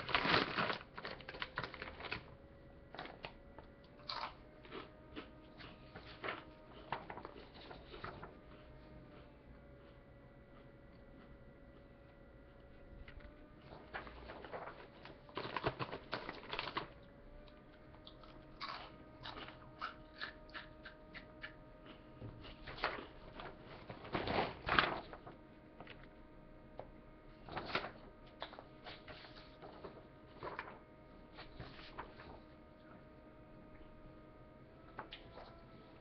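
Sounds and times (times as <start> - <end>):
person chewing crunchy chips: 3.9 - 6.0, 18.0 - 23.2.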